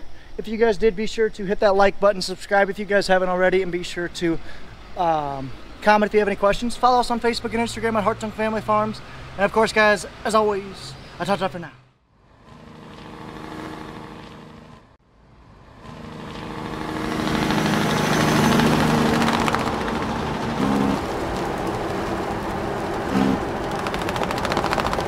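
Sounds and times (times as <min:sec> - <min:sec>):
tractor engine running: 0:15.6 - 0:25.0.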